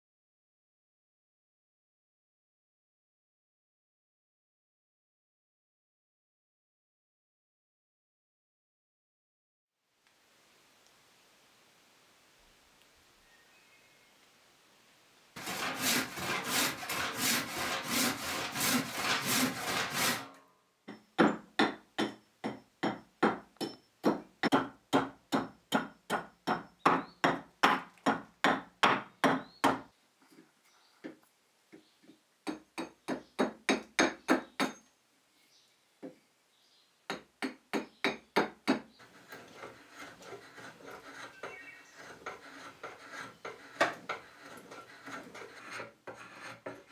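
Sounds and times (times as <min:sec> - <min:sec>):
hand tool scraping wood: 0:15.4 - 0:20.4, 0:37.8 - 0:46.9.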